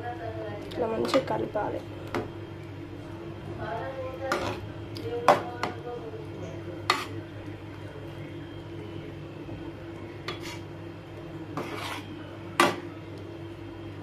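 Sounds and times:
steady low hum: 0.0s - 14.0s
metal ladle scraping a pan: 4.3s - 4.6s, 6.9s - 7.2s, 10.2s - 10.7s, 11.6s - 12.1s.

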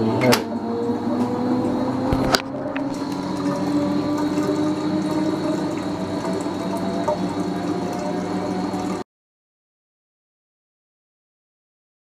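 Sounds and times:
washing machine hum: 0.0s - 9.1s
rising tone: 0.6s - 7.1s
water flowing: 1.8s - 9.0s.

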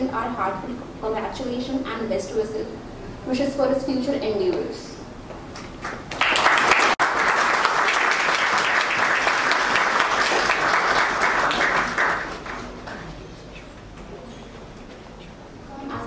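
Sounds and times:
audience applauding: 5.5s - 13.5s.

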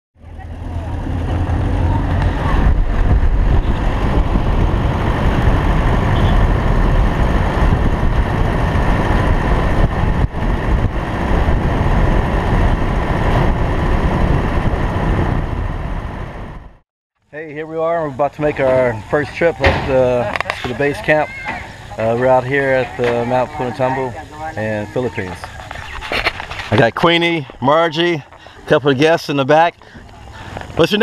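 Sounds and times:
vehicle engine and road rumble: 0.2s - 31.0s.

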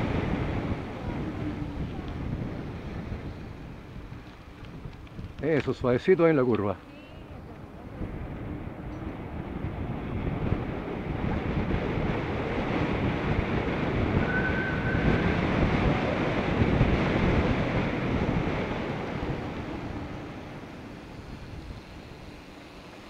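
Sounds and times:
wind rushing over microphone: 0.0s - 23.0s
high steady tone: 14.0s - 16.6s.

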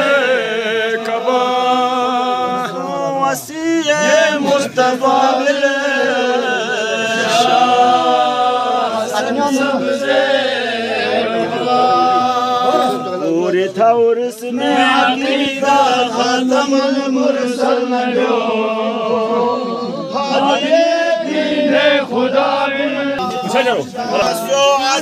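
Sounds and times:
men chanting together: 0.0s - 25.0s.

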